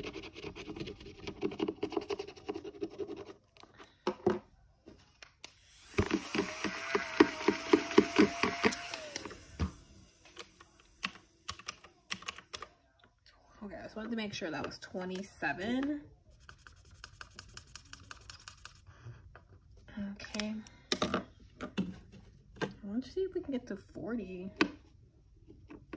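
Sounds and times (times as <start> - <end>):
highlighter scratching on paper: 16.3 - 18.9.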